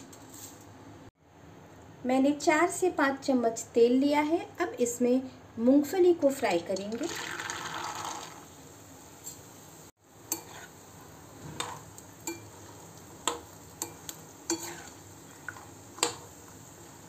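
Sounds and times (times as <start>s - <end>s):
peanuts sizzling in oil: 6.4s - 17.0s
metal spoon scraping pan: 10.3s - 16.6s.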